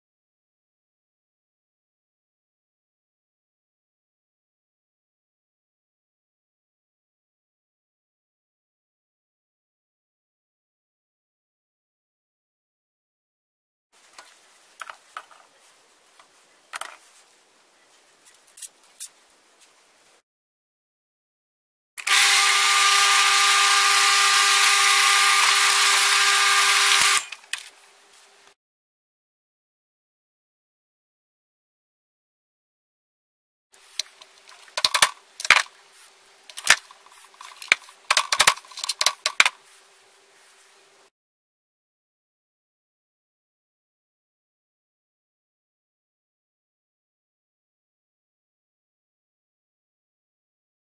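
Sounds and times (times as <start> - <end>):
faint room noise: 14.0 - 20.2, 33.8 - 41.1
metal parts clicking on wood: 34.0 - 35.7, 36.5 - 39.5.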